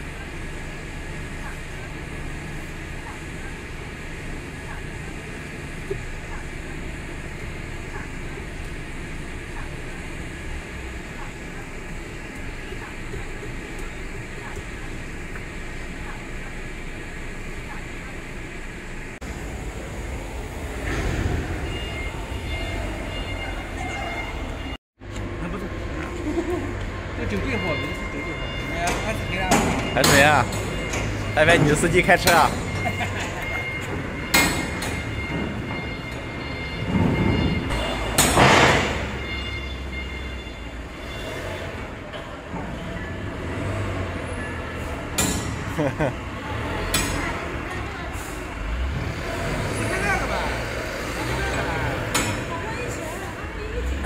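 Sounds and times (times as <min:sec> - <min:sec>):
truck diesel engine running: 0:00.0 - 0:38.4, 0:39.0 - 0:54.0
metal door rumbling scrape: 0:20.0 - 0:23.8.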